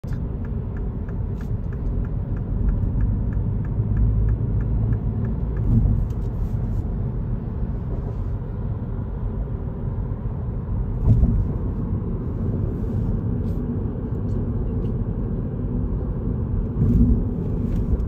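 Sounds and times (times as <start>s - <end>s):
car road and engine rumble: 0.0s - 18.0s
light regular ticking: 0.1s - 6.2s.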